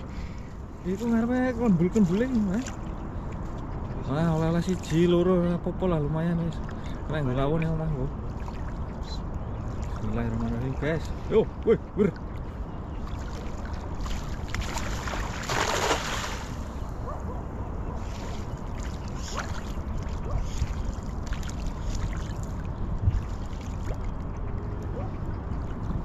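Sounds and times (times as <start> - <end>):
steady low rumble: 0.0 - 26.0
small watery splashes: 6.4 - 11.2, 12.0 - 16.8, 18.0 - 26.0
cast net splashing onto water: 13.2 - 16.6.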